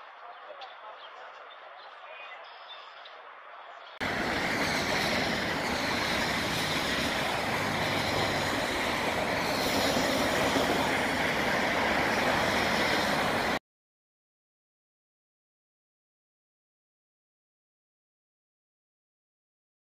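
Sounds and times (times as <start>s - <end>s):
steady loud rushing noise: 4.0s - 13.6s.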